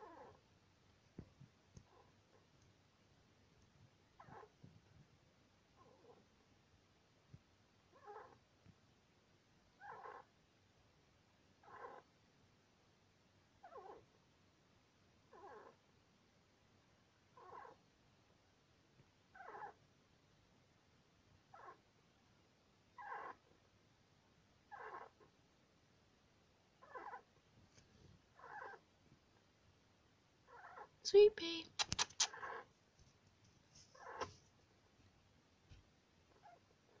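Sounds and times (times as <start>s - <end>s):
hamster squeaking in sleep: 0.0s - 0.4s, 4.2s - 4.6s, 7.9s - 8.4s, 9.8s - 10.3s, 11.6s - 12.1s, 13.6s - 14.1s, 15.3s - 15.8s, 17.3s - 17.8s, 19.3s - 19.8s, 21.5s - 21.8s, 23.0s - 23.5s, 24.7s - 25.2s, 26.8s - 27.3s, 28.3s - 28.8s, 30.5s - 31.0s, 31.7s - 32.7s, 33.8s - 34.4s, 36.3s - 37.0s.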